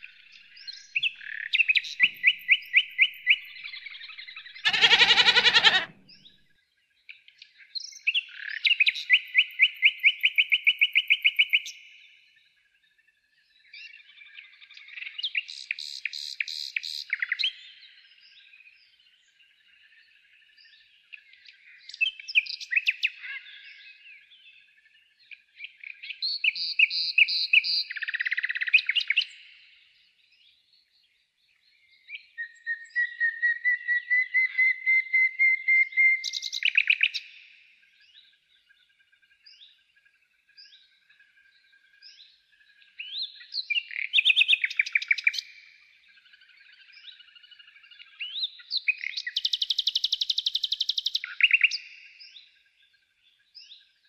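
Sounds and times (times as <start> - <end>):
songbirds chirping and trilling: 0.0 - 54.0
long rising bird trill: 1.8 - 6.2.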